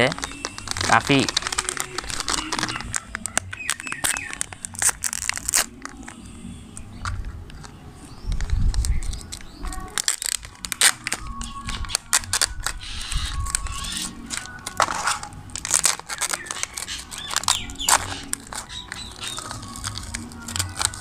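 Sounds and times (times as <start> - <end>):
plastic packet crinkling and tearing: 0.0 - 21.0.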